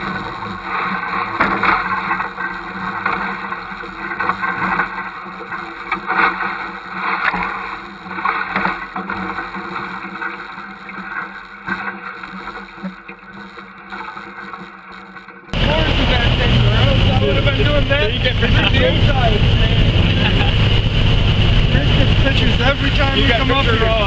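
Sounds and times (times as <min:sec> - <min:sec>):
vehicle engine running: 0:00.0 - 0:06.1, 0:15.5 - 0:24.0
water splashing: 0:00.0 - 0:24.0.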